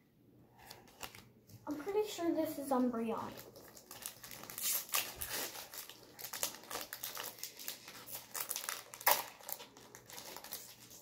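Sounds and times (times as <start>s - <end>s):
foil wrapper crinkling: 0.6s - 11.0s.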